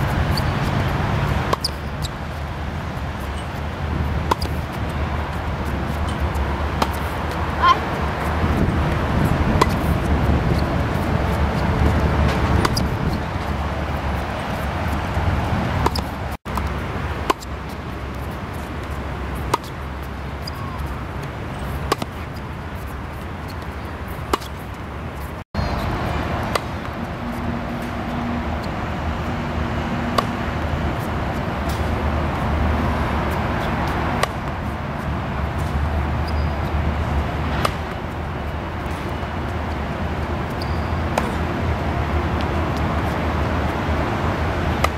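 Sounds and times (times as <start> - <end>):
tennis ball struck by racket: 1.3 - 1.9, 4.1 - 4.8, 5.4 - 13.0, 14.5 - 17.6, 18.8 - 19.8, 20.4 - 22.4, 23.5 - 24.6, 26.4 - 26.9, 30.1 - 30.4, 31.6 - 32.0, 33.6 - 34.6, 37.5 - 38.0, 40.6 - 41.5.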